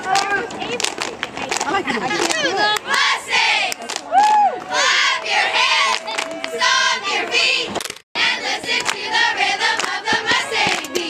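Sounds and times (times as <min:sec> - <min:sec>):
girls chanting a cheer: 0:02.4 - 0:03.8, 0:04.6 - 0:11.0.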